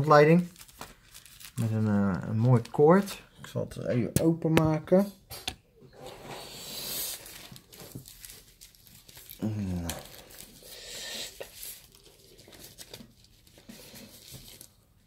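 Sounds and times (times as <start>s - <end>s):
plastic bag crinkling: 0.0s - 3.2s, 7.0s - 15.0s.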